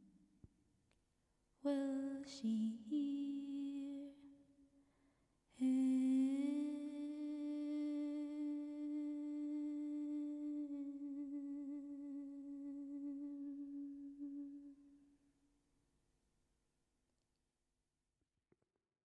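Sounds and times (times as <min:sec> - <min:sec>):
woman singing a long note: 0:05.6 - 0:14.9.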